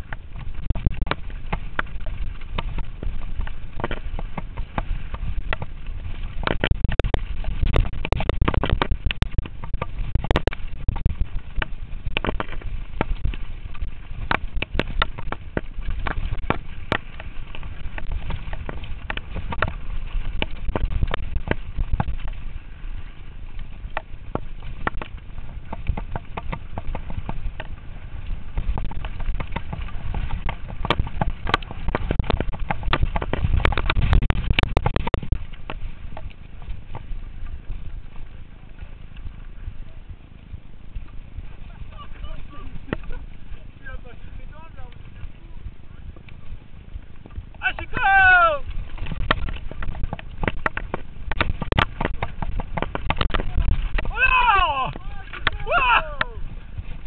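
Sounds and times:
bike rattling over bumps: 0:00.0 - 0:57.0
wind rumbling on microphone: 0:00.0 - 0:57.0.

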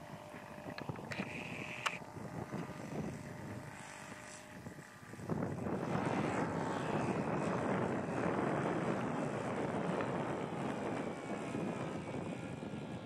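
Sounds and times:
model aircraft flying past: 0:00.0 - 0:13.0.

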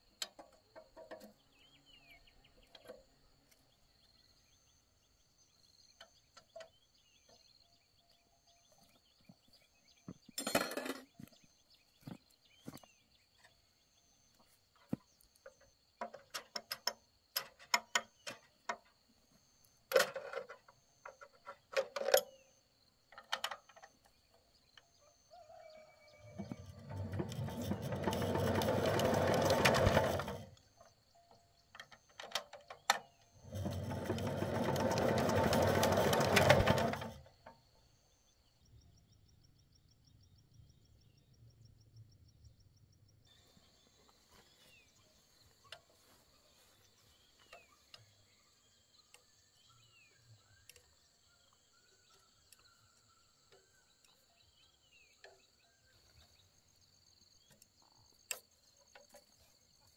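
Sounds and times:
motorised workshop tool running: 0:26.3 - 0:30.9, 0:32.9 - 0:37.4
insects trilling: 0:37.2 - 0:59.9
bird chirps: 0:37.7 - 0:59.6.

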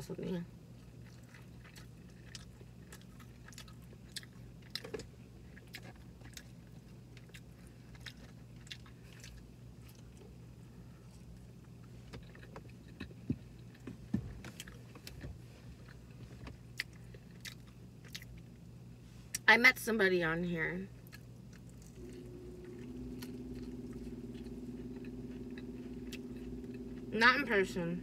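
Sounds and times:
person chewing food: 0:01.0 - 0:10.1, 0:15.8 - 0:18.5.

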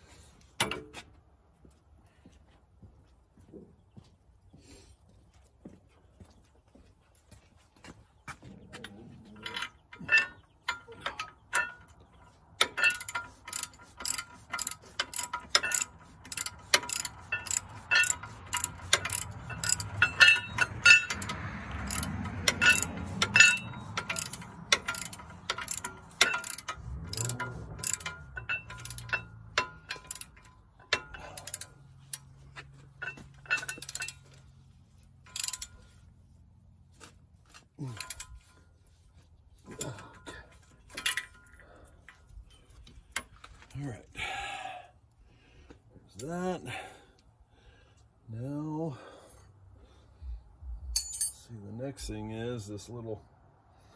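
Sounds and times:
ratchet wrench clicking: 0:12.6 - 0:32.3, 0:33.0 - 0:34.4, 0:35.0 - 0:35.9, 0:37.8 - 0:38.6.

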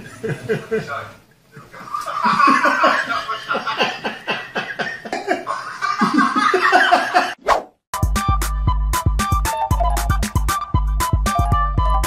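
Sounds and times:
people laughing: 0:00.0 - 0:07.4.

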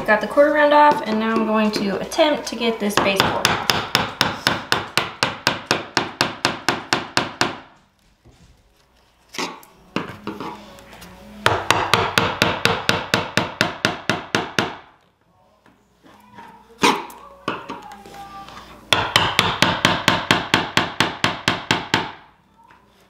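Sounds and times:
hammer tapping: 0:03.0 - 0:07.7, 0:11.4 - 0:14.9, 0:18.9 - 0:22.2.

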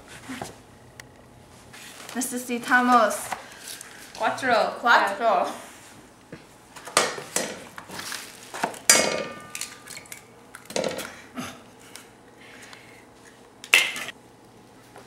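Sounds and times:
eggs cracked against saucepan rim: 0:08.6 - 0:11.2, 0:13.6 - 0:14.1.

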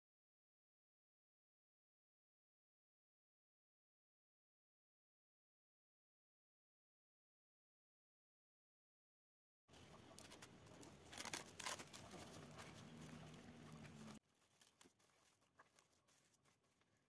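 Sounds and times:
cling film crinkling: 0:09.7 - 0:17.0.

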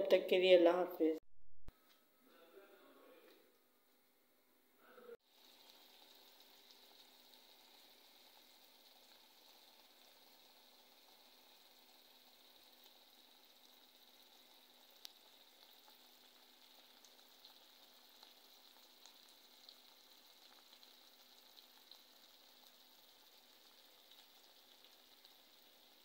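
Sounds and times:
omelet sizzling in wok: 0:05.2 - 0:26.0
small crackles: 0:12.6 - 0:26.0.

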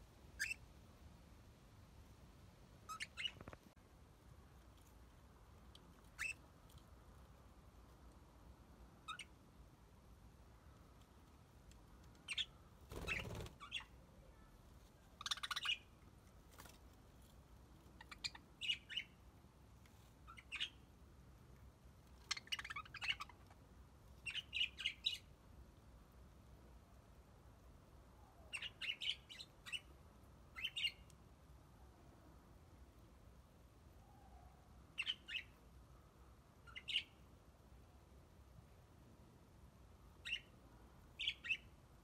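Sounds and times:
budgerigars chirping: 0:00.4 - 0:00.6, 0:02.9 - 0:03.4, 0:15.2 - 0:15.9.

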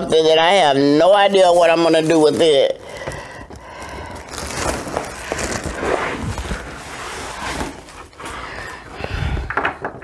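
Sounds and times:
plastic packaging crinkling: 0:01.1 - 0:08.2.

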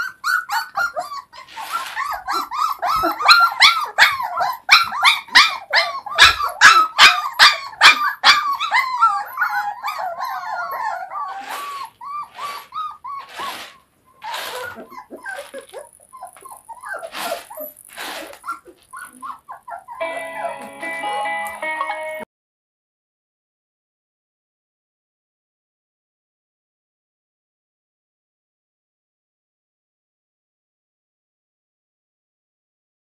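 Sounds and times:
puppy whining and yelping: 0:00.0 - 0:20.7.

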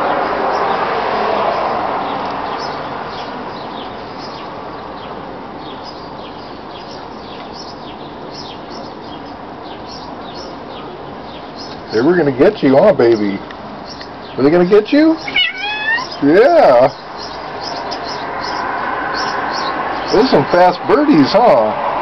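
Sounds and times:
hummingbirds chirping: 0:00.0 - 0:21.8.

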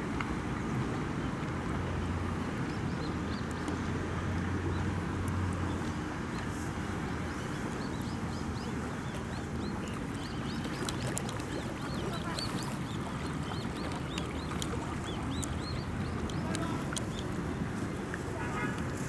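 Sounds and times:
birds chirping: 0:07.3 - 0:17.4.

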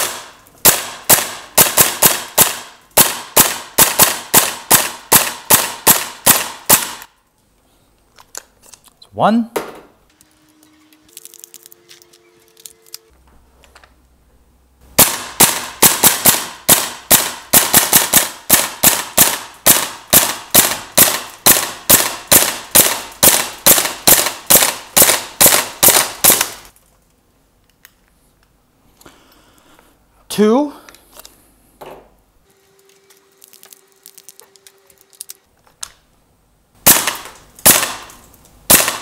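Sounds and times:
airsoft rifle rapid shots: 0:00.0 - 0:07.1, 0:15.0 - 0:26.7, 0:36.8 - 0:38.1, 0:38.7 - 0:39.0.

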